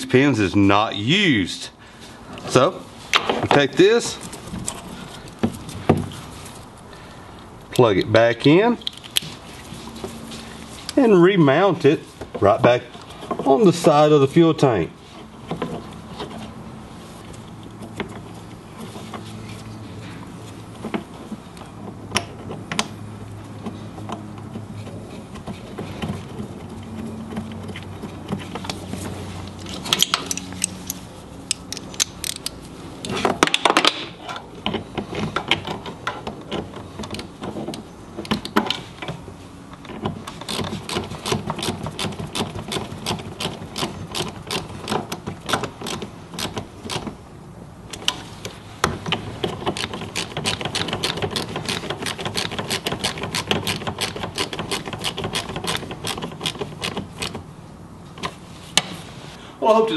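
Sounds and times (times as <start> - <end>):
tools and metal parts clinking: 29.4 - 34.4.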